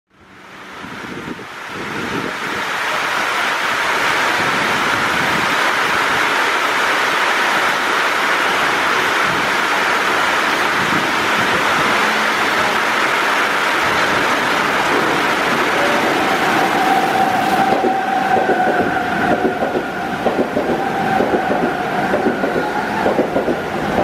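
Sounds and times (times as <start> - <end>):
electric train rumbling: 0.1 - 24.0
heavy rain pouring: 0.2 - 24.0.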